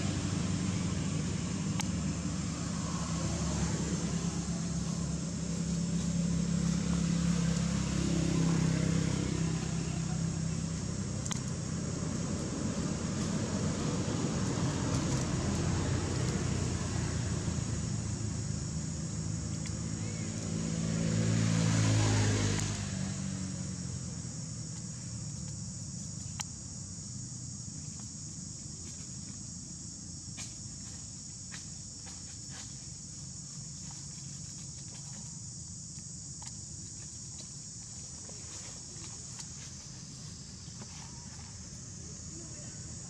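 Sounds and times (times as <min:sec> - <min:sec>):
rustles of dry leaf litter: 0:00.0 - 0:20.6, 0:27.5 - 0:43.0
vehicle passing: 0:00.0 - 0:25.4
high insect drone: 0:00.0 - 0:43.0.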